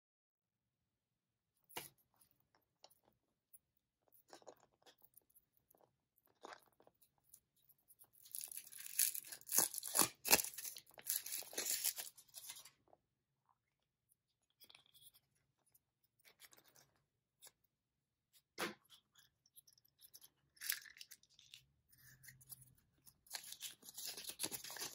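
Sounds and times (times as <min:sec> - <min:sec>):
foil wrapper crinkling and tearing: 0:08.2 - 0:12.7, 0:23.3 - 0:24.9
faint handling sounds: 0:10.4 - 0:24.9.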